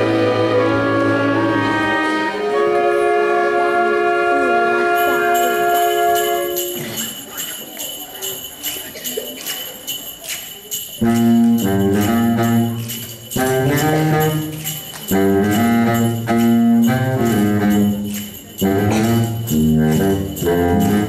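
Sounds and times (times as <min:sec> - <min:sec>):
symphony orchestra playing: 0:00.0 - 0:07.2, 0:11.0 - 0:21.0
sleigh bells shaken: 0:04.9 - 0:21.0.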